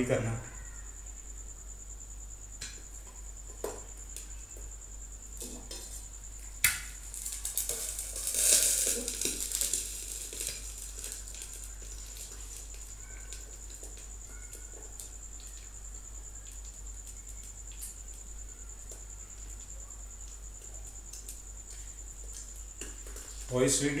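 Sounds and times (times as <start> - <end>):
egg sizzling in oil: 5.4 - 15.7.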